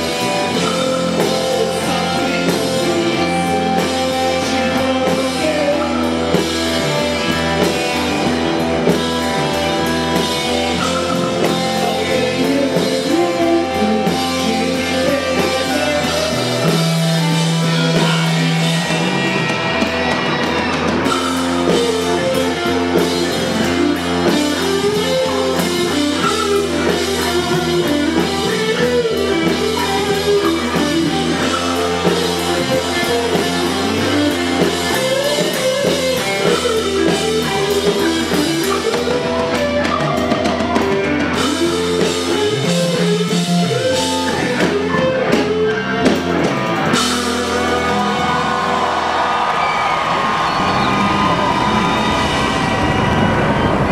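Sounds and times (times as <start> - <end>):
person singing: 0.0 - 8.2, 10.8 - 18.9
drum kit: 0.0 - 53.9
electric guitars: 0.0 - 53.9.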